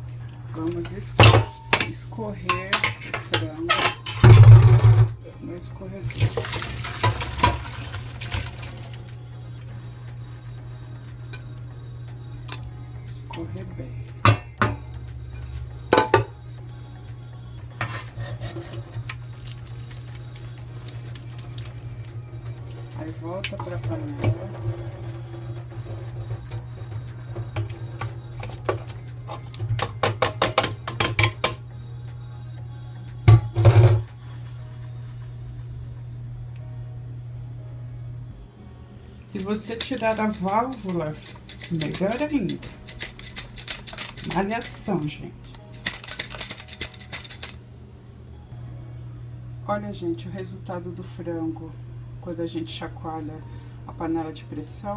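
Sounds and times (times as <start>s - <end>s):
steady low hum: 0.0s - 54.9s
metal pot clanking: 0.8s - 5.2s, 6.1s - 9.0s, 14.2s - 14.9s, 15.9s - 16.3s, 26.8s - 31.6s
water draining: 6.0s - 9.2s, 19.0s - 22.1s, 23.4s - 25.2s
water splashing into colander: 6.0s - 9.2s, 19.3s - 22.0s
low hum: 31.5s - 54.9s.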